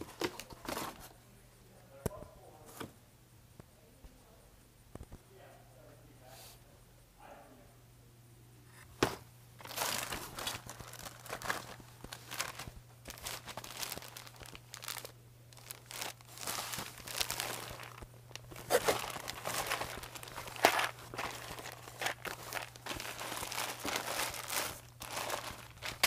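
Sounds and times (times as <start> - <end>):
paper and plastic packaging rustling: 0.0 - 1.1, 9.0 - 26.0.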